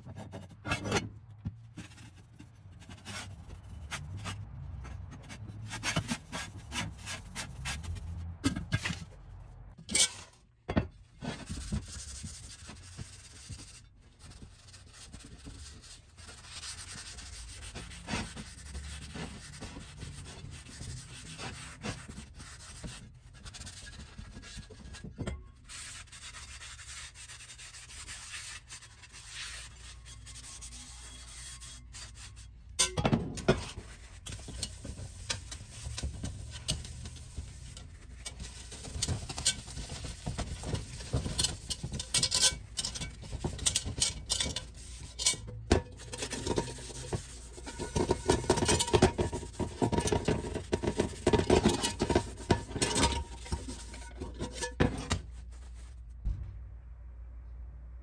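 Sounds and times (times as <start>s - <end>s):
paper towel rubbing cast iron: 11.4s - 25.0s, 25.6s - 32.5s, 33.7s - 55.9s.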